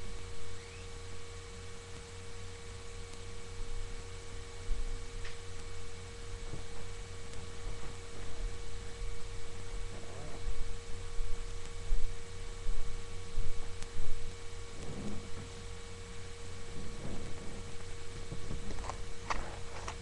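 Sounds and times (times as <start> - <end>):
electrical hum: 0.0 - 20.0
faint soft rustles: 12.7 - 15.7, 16.4 - 20.0.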